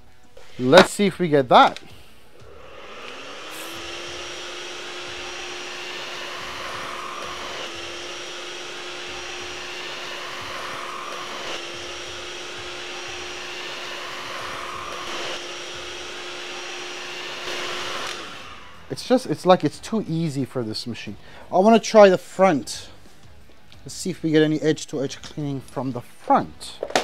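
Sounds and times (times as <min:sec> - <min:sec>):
cordless vacuum running: 0:02.3 - 0:19.7.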